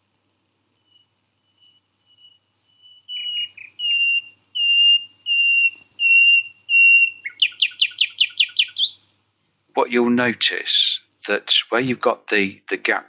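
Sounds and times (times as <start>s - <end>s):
nightingale singing: 0.7s - 9.2s.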